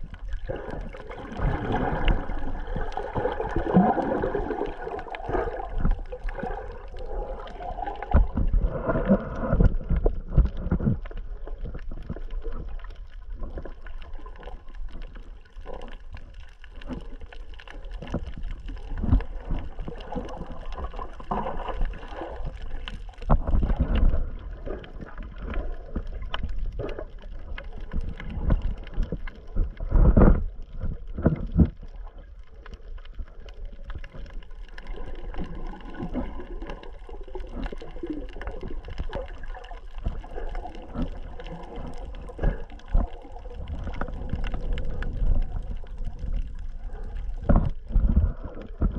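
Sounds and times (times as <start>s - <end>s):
underwater water sloshing and gurgling: 0.0s - 48.9s
muffled underwater thumps: 8.1s - 11.0s.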